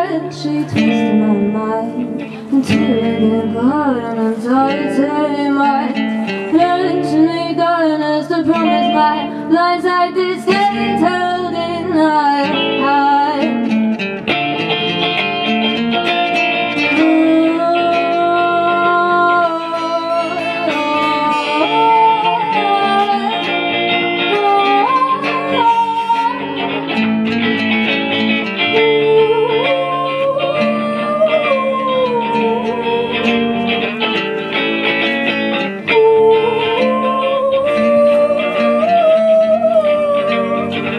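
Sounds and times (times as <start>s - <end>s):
live guitar music: 0.0s - 40.9s.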